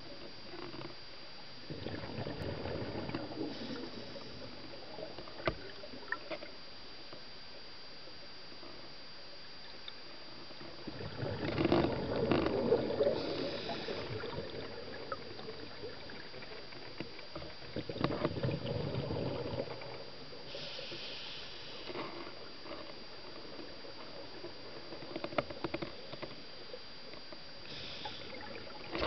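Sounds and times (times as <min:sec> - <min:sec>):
steady faint hiss: 0:00.0 - 0:29.0
regulator exhaling bubbles underwater: 0:01.6 - 0:06.3, 0:10.7 - 0:16.8, 0:17.5 - 0:20.3
higher hiss: 0:13.1 - 0:14.4, 0:20.4 - 0:22.1, 0:27.6 - 0:28.4.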